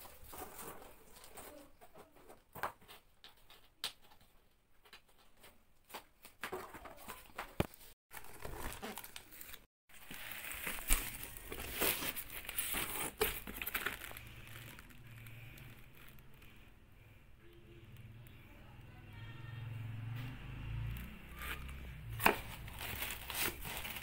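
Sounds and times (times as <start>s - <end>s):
plastic and paper crinkling: 0.0s - 4.2s, 5.1s - 16.7s, 21.4s - 24.0s.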